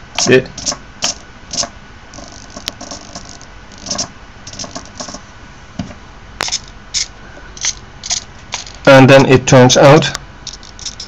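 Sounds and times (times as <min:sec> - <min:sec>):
plastic parts clicking and rattling: 0:06.4 - 0:08.8, 0:10.5 - 0:11.0.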